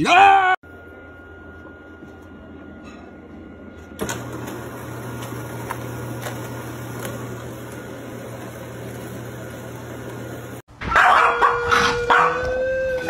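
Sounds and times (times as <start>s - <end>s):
litter box motor humming: 0.7s - 10.7s.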